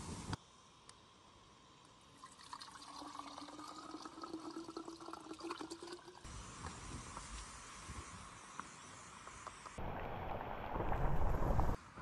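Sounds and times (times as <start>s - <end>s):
hot water gurgling into jar: 2.2s - 6.3s
low rumbling noise: 9.8s - 11.8s.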